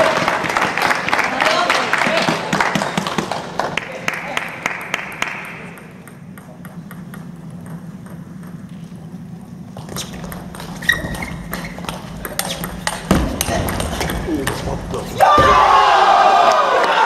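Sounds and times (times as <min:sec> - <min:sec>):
low hum of large hall: 0:00.0 - 0:17.0
shoe squeak: 0:09.8 - 0:13.7.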